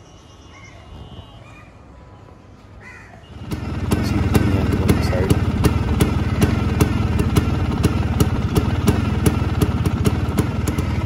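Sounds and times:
bird calls: 0.0 - 2.0, 10.4 - 11.0
scooter engine starting and running: 3.3 - 11.0.

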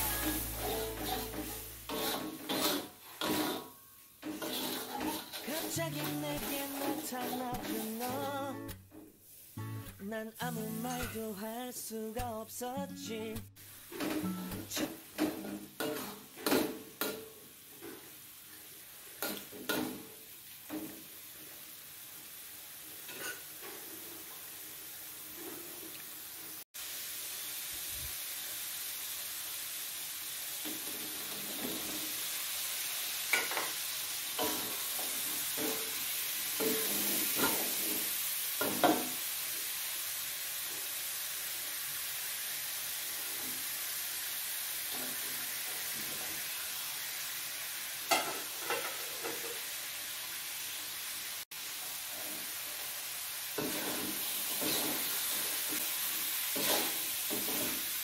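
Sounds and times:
metal spatula scraping a wok: 0.0 - 8.2, 15.2 - 16.7, 23.1 - 24.2, 36.6 - 38.2, 53.6 - 55.8, 56.5 - 57.9
sauce sizzling in a wok: 0.0 - 58.0.

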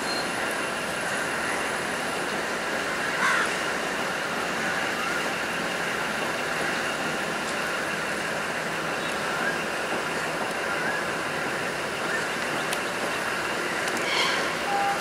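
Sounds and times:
diesel train running on rails: 0.0 - 15.0.

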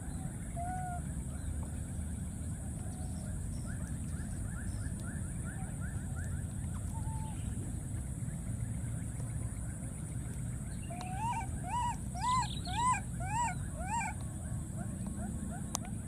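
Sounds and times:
baby monkey whimpering: 11.0 - 14.1.

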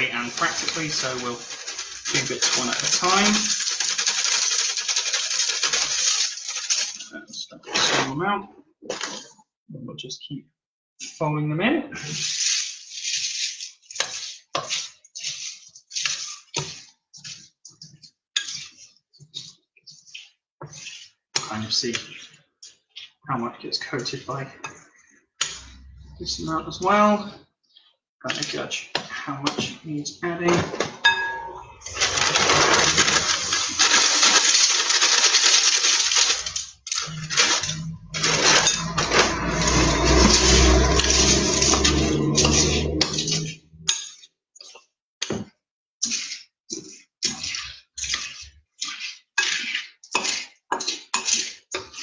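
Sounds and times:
cornflakes crunching in chocolate: 0.0 - 7.1, 31.9 - 43.5.

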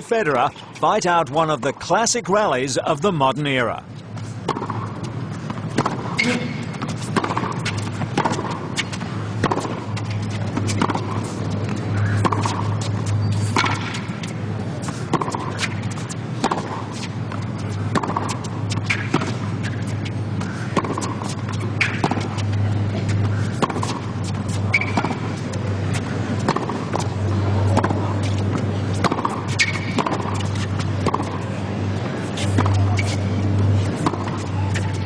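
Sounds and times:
steady low hum: 0.0 - 35.0
shoe squeaks: 3.9 - 8.0, 9.9 - 16.2, 16.9 - 31.4, 32.2 - 35.0
tennis racquets striking ball: 4.1 - 35.0.

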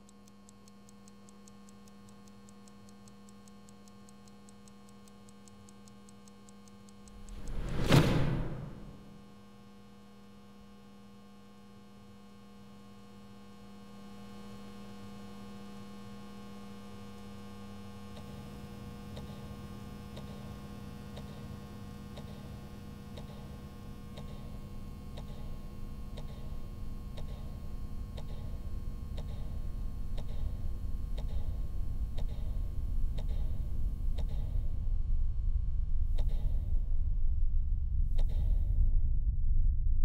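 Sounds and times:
faint regular ticks: 0.0 - 7.4, 18.1 - 34.8
electrical hum: 17.0 - 39.8.

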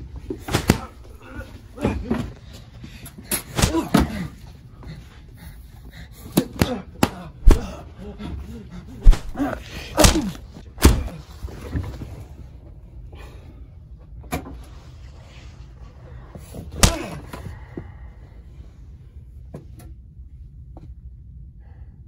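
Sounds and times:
punch impacts: 0.5 - 1.3, 3.5 - 4.2, 6.6 - 7.8, 9.0 - 11.2, 16.8 - 17.2
short grunts: 0.5 - 2.3, 6.4 - 11.2, 16.8 - 17.4.

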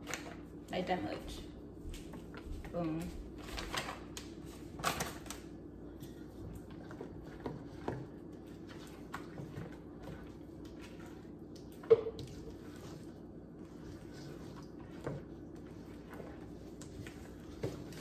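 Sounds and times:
spatula scraping metal bowl: 12.1 - 18.0.

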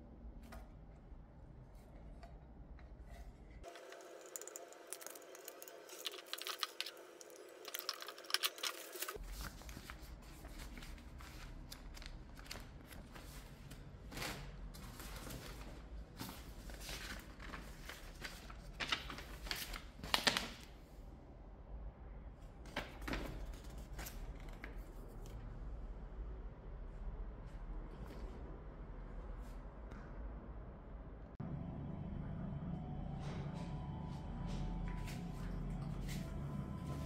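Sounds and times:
paper rustling and crinkling: 3.1 - 20.7.

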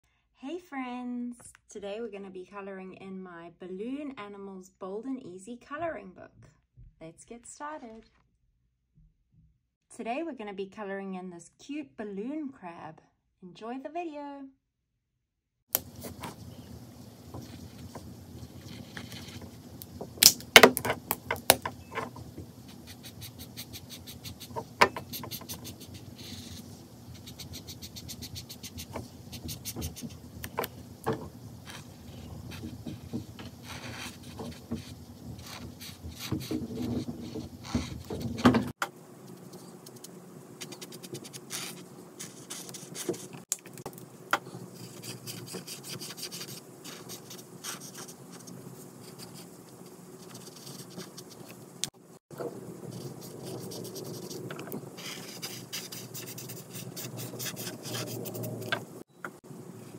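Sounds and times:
marker scratching on paper: 17.3 - 19.7, 21.8 - 30.8, 31.6 - 38.5, 39.3 - 43.4, 44.7 - 51.6, 52.9 - 58.9.

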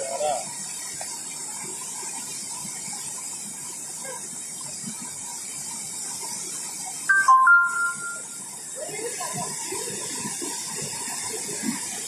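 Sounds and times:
water jetting hiss: 0.0 - 12.0
electronic chime: 7.1 - 8.4.

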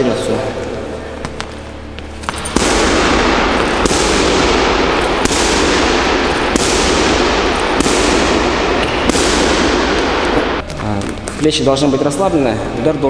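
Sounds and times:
loud continuous crackling: 0.6 - 12.3
punches hitting heavy bag: 2.2 - 10.6.

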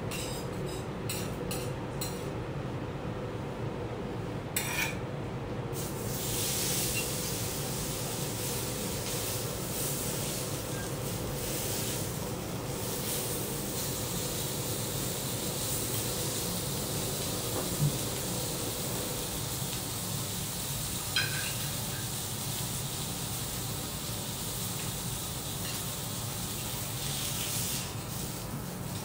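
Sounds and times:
steak sizzling on griddle: 5.8 - 29.0.

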